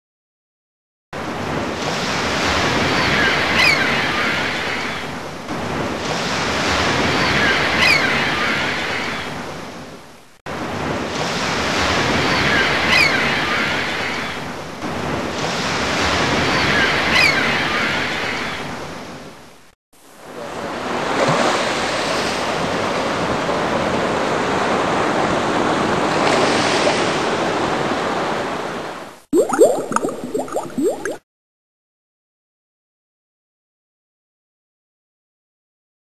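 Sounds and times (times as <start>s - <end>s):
ocean waves breaking: 1.2s - 9.8s, 20.2s - 31.2s.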